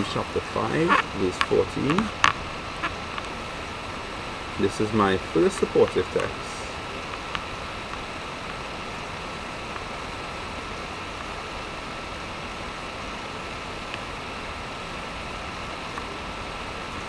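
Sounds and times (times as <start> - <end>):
steady background hiss: 0.0 - 17.0
faint ticks: 7.0 - 8.6.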